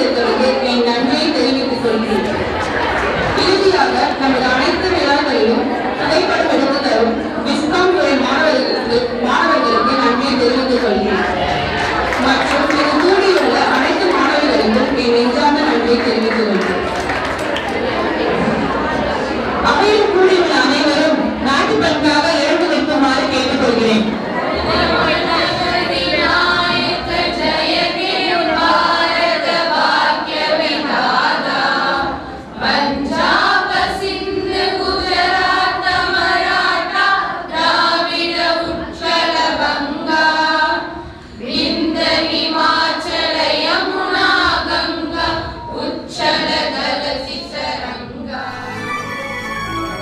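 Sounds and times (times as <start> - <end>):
young women singing in unison: 21.9 - 50.0
instrumental music: 48.4 - 50.0.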